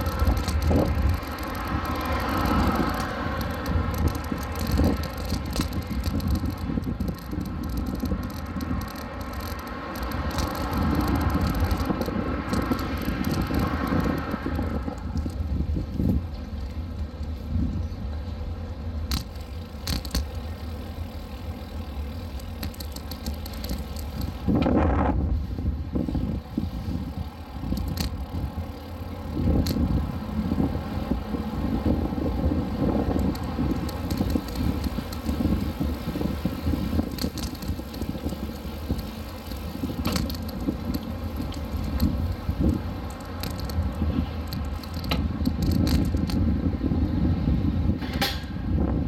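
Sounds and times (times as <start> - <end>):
sharp clicks: 0.0 - 15.5, 22.0 - 24.5, 32.9 - 46.4
light ticks and rattles: 0.0 - 24.7, 26.1 - 46.4
bicycle tyre noise: 0.0 - 49.0
wind buffeting microphone: 0.0 - 49.0.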